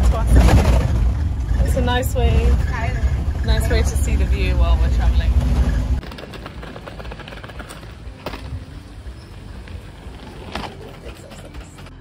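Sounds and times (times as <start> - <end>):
suitcase wheels rattling on pavement: 0.0 - 12.0.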